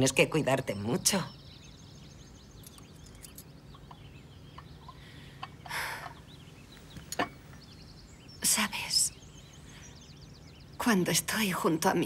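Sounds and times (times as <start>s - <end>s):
small birds chirping: 0.0s - 12.0s
chickens clucking: 3.8s - 6.3s.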